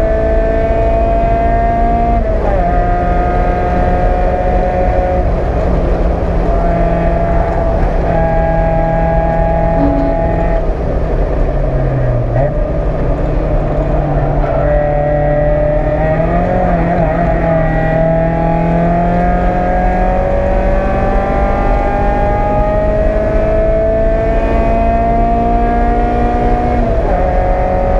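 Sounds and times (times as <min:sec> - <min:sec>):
car engine accelerating: 0:00.0 - 0:27.9
road and wind noise: 0:00.0 - 0:27.9.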